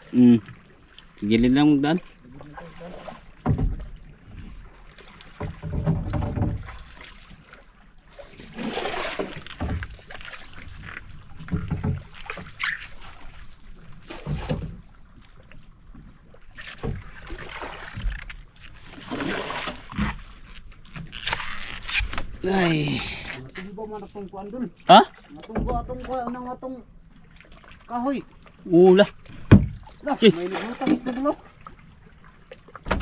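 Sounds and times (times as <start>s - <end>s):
paddle splashing water: 0.0s - 33.0s
low knocks against boat hull: 3.4s - 4.0s, 5.4s - 6.8s, 29.4s - 29.9s.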